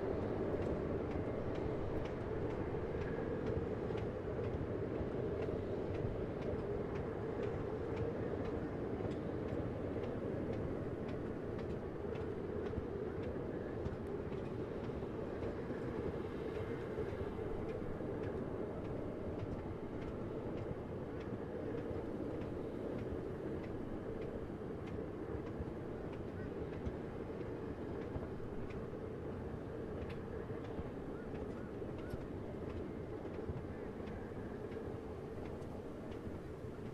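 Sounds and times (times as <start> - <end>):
train wheels rumbling on rails: 0.0 - 36.9
sharp clicks of wheels on rail joints: 29.4 - 36.9.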